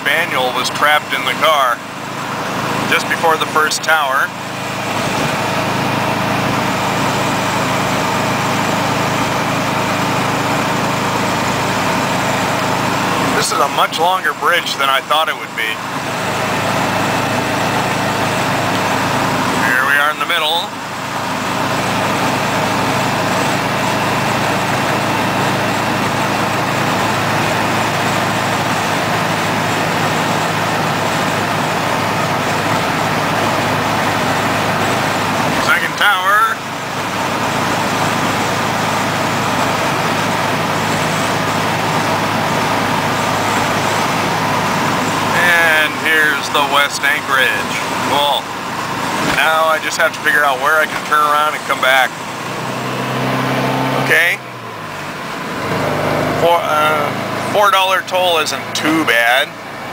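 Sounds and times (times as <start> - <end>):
car engine drone: 0.0 - 59.9
road and wind noise: 0.0 - 59.9.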